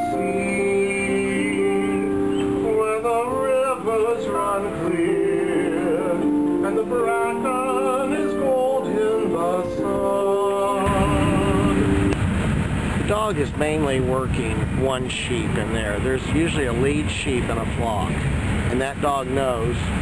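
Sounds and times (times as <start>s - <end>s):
man singing with vibrato: 0.0s - 12.2s
plucked harp notes: 0.0s - 12.3s
steady rushing noise: 10.8s - 20.0s.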